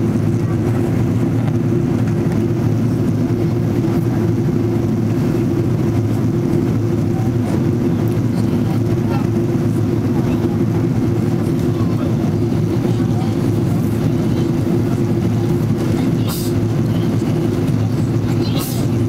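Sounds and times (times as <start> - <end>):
airliner cabin noise: 0.0 - 19.0.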